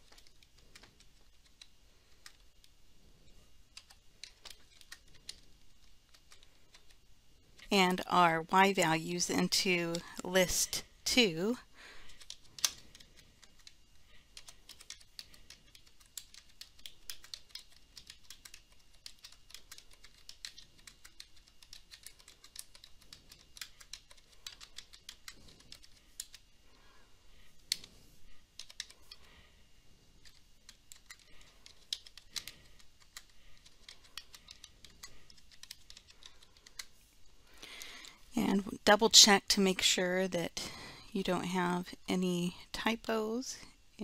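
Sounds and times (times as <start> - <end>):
keyboard keys clicking: 12.2 - 26.4.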